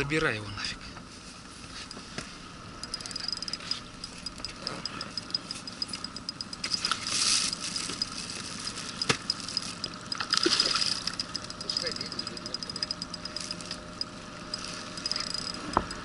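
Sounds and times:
fishing reel clicking: 2.8 - 8.2, 9.0 - 16.0.

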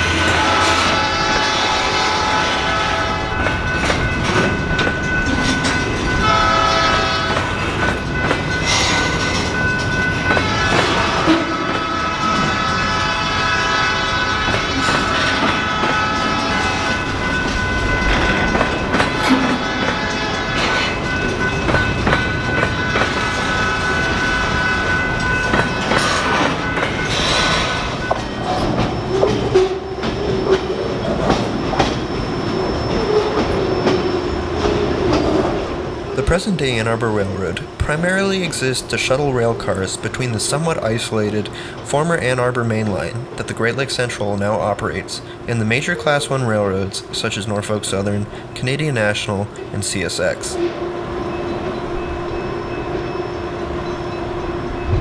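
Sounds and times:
freight train wheels clicking: 0.0 - 55.0
steady high tones: 0.0 - 55.0.

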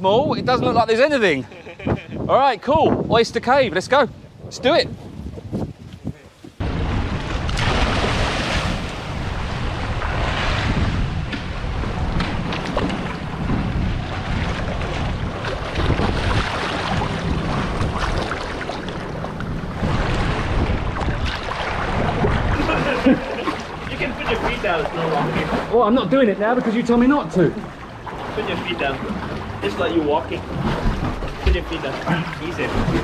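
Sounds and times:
wind rumble on microphone: 0.0 - 25.7, 27.6 - 33.0
microphone handling noise: 4.9 - 22.6
water sloshing and splashing: 6.4 - 33.0.

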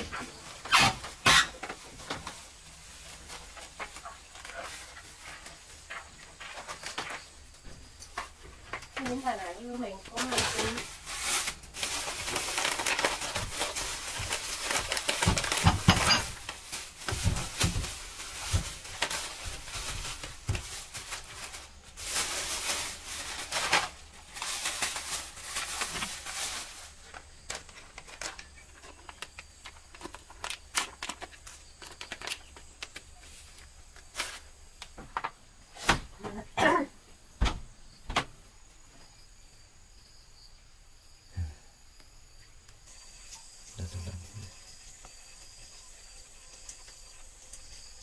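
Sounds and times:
plastic bags rustling: 0.0 - 36.1.

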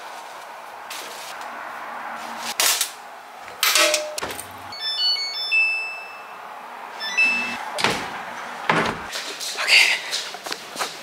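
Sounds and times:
control panel beeping: 7.0 - 7.6
washing machine door thuds: 7.8 - 9.1.

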